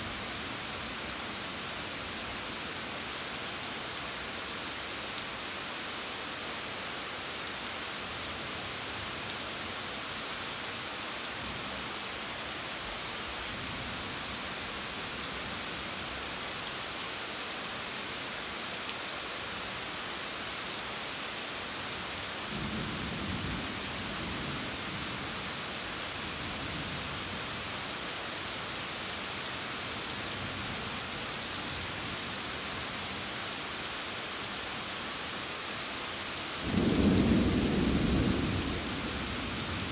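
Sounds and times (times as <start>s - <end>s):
rain hissing: 35.9s - 39.9s.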